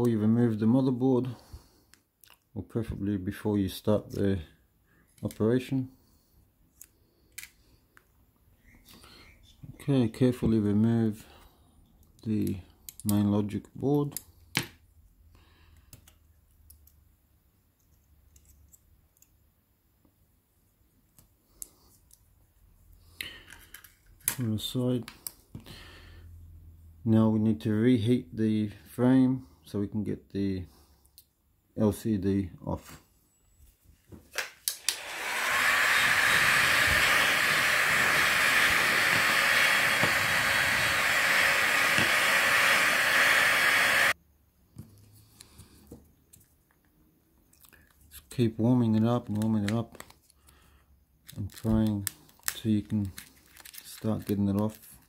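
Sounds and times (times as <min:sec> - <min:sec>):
hot-air blower hissing: 0:34.7 - 0:44.2.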